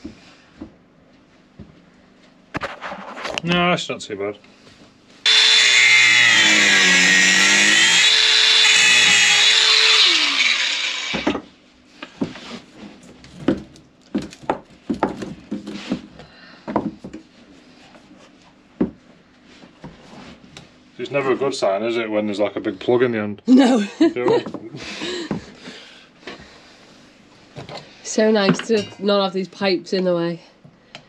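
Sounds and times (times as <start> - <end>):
angle grinder cutting metal: 5.3 - 11.4.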